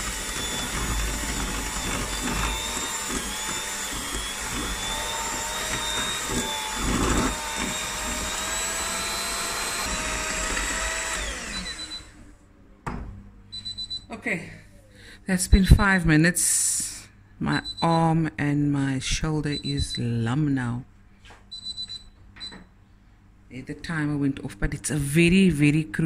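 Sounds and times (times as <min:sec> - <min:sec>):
electric hand mixer running: 0:00.0 - 0:12.2.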